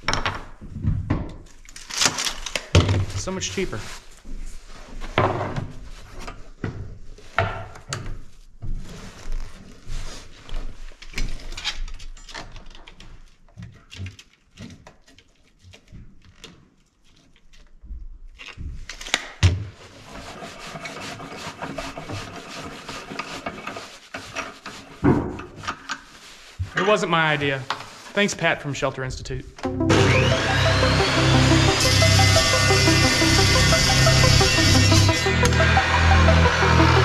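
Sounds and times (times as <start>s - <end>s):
steady rasping: 30.2s - 37.0s.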